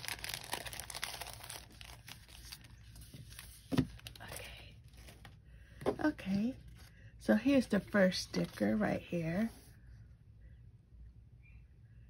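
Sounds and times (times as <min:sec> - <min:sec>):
plastic sleeve crinkling: 0:00.0 - 0:05.4.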